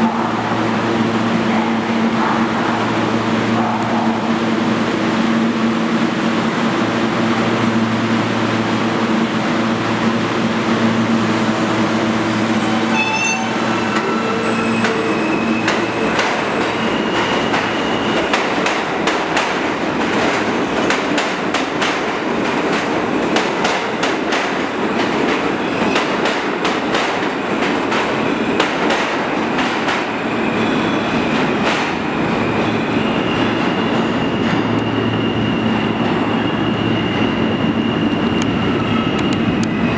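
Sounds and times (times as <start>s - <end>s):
subway train hum: 0.0s - 39.9s
high wheel squeal: 11.6s - 18.4s, 32.3s - 39.9s.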